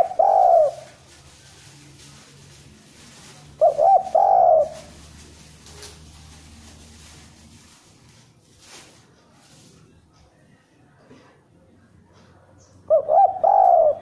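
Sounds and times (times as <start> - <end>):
dove cooing: 0.0 - 1.0, 3.6 - 5.1, 12.8 - 14.0.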